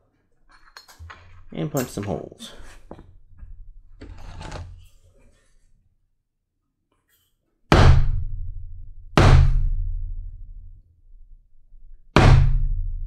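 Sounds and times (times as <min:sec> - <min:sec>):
mallet striking a hole punch: 0:12.2 - 0:12.8.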